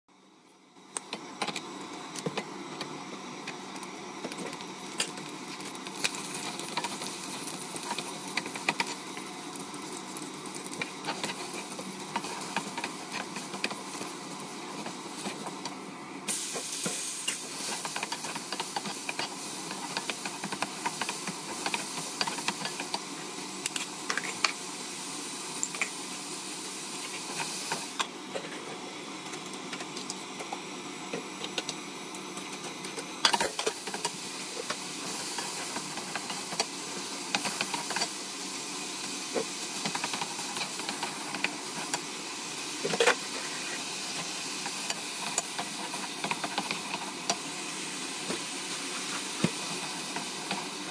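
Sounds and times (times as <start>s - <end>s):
oil sizzling in a wok: 2.6s - 28.3s, 29.8s - 50.9s.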